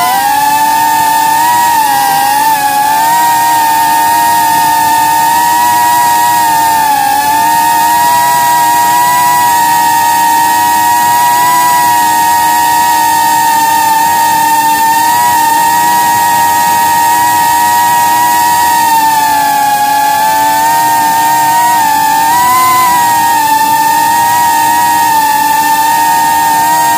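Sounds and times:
drone propellers whining: 0.0 - 26.9.

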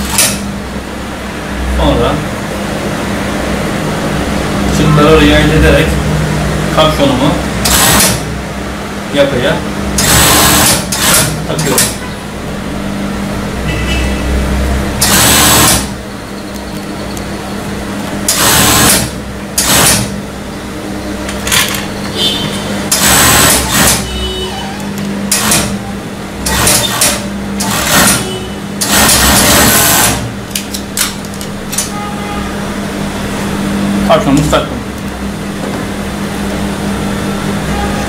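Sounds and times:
steady machine hum: 0.0 - 38.0
overlock machine stitching: 7.6 - 8.3, 9.9 - 12.0, 15.0 - 16.0, 18.2 - 20.2, 22.9 - 24.2, 25.3 - 25.8, 26.4 - 31.0.

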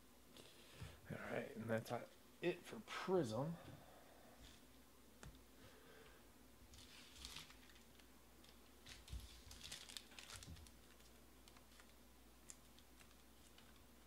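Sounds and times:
packaging crinkling and rustling: 6.7 - 14.0.

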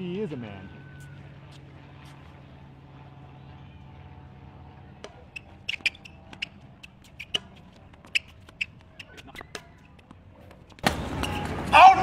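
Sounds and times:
low hum: 0.0 - 11.7
court shoes squeaking: 0.9 - 2.4, 4.6 - 12.0.

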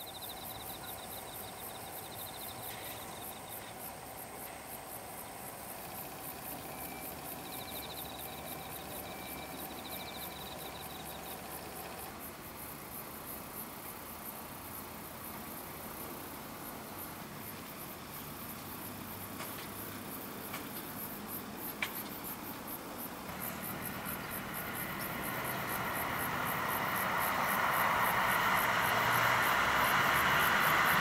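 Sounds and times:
insects chirping and trilling: 0.0 - 31.0
faint steady hum: 19.8 - 31.0.

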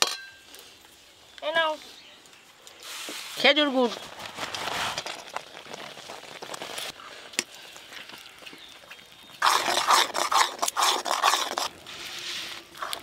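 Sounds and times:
metal ladle scraping a wok: 9.6 - 13.0.

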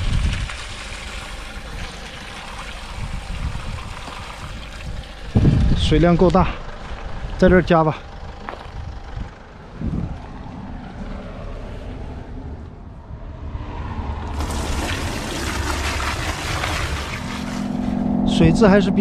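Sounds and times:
water gushing into plastic bucket: 0.0 - 5.8, 14.3 - 17.8
low rumble: 2.7 - 19.0.

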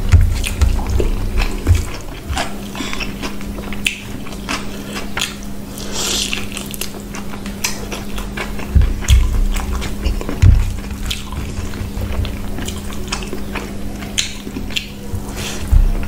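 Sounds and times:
low thumps: 0.0 - 2.6, 8.5 - 13.9, 15.1 - 16.0
fingers squishing wet food: 0.0 - 16.0
mouth eating sounds: 0.0 - 16.0
steady low hum: 0.0 - 16.0.

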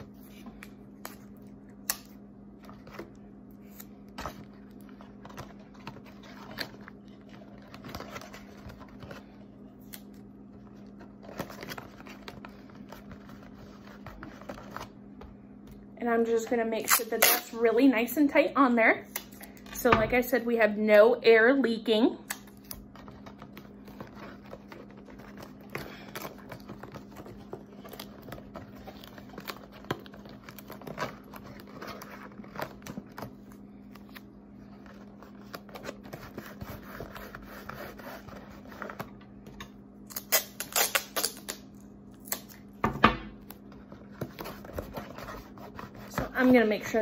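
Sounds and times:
steady low hum: 0.0 - 47.0
masking tape crinkling: 40.1 - 41.6.

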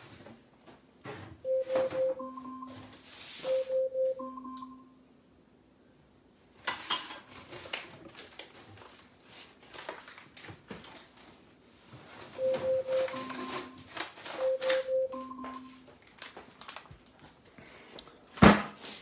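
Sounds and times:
smart speaker alarm chime: 1.5 - 2.8, 3.4 - 5.0, 12.4 - 15.8
faint clicks and crackles: 16.0 - 17.4.

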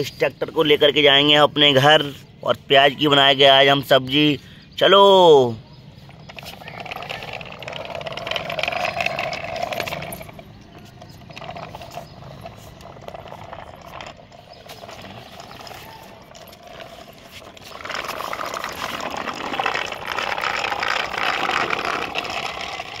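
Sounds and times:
metal toy rattling over concrete: 5.8 - 23.0.

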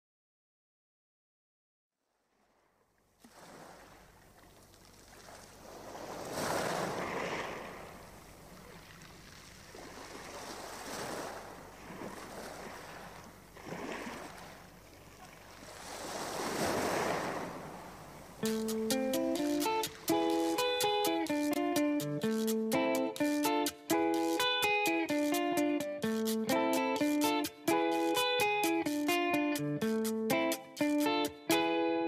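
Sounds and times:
sea waves rushing: 3.2 - 4.3, 5.1 - 31.3
plucked guitar: 18.4 - 32.0.

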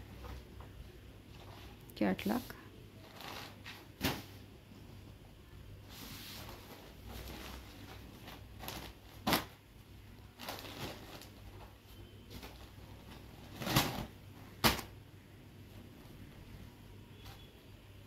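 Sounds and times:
cloth rustling: 5.8 - 9.6, 10.2 - 14.9.

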